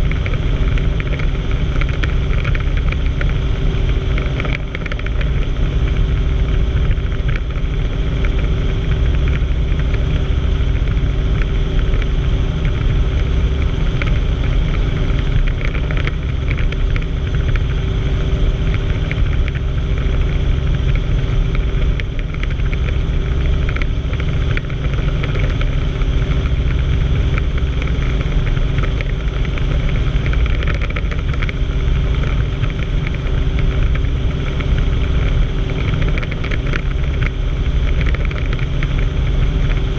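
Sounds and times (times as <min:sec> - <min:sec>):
helicopter engine and rotor drone: 0:00.0 - 0:39.9.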